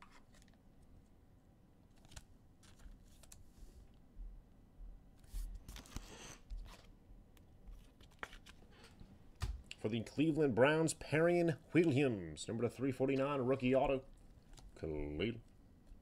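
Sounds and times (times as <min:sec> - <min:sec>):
trading cards clicking and rustling: 0:01.9 - 0:03.5, 0:07.7 - 0:09.7.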